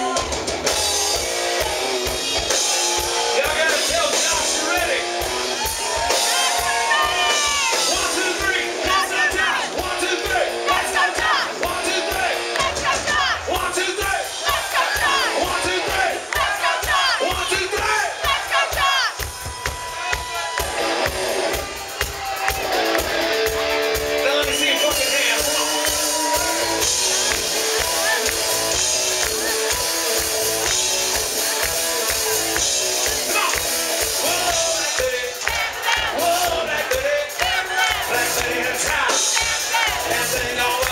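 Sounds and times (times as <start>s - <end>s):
electric guitar: 0.0s - 13.5s, 20.5s - 40.9s
bass guitar: 0.0s - 18.8s, 19.6s - 40.9s
shouted vocals: 0.0s - 22.9s, 24.6s - 40.9s
crowd shouting along: 0.0s - 40.9s
drum kit beat: 0.0s - 40.9s
live rock band playing: 0.0s - 40.9s.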